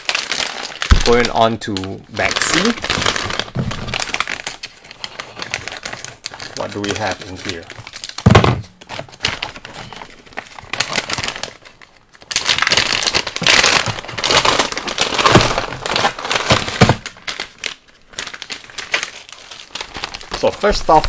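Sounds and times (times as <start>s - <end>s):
plastic bag crinkling: 0.0s - 21.0s
loud thump: 8.3s - 8.6s.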